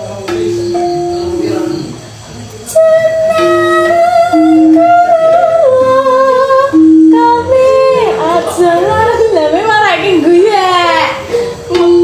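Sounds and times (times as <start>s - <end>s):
person singing long wavering notes: 2.7s - 8.5s.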